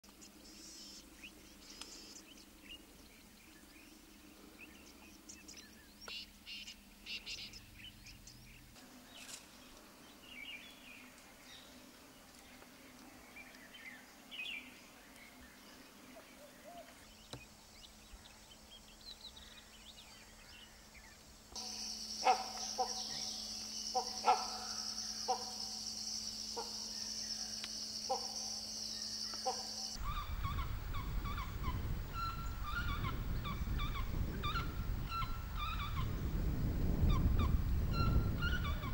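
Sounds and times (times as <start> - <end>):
hornbills harsh calls: 21.6 - 25.8
repeated bird calls: 21.6 - 25.8, 26.5 - 36.4, 37.0 - 38.9
wind rumble: 30.0 - 38.9.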